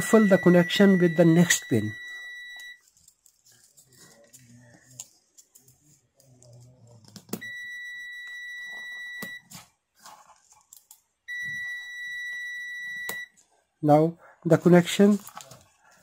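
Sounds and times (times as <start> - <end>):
multimeter high beeps: 0.0 - 2.8, 7.4 - 9.5, 11.3 - 13.3.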